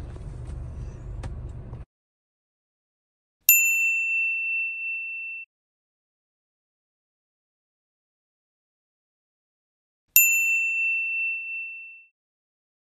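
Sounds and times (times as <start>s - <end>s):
low car cabin rumble: 0.0s - 1.9s
notification bell ding: 3.5s - 5.5s, 10.2s - 12.1s.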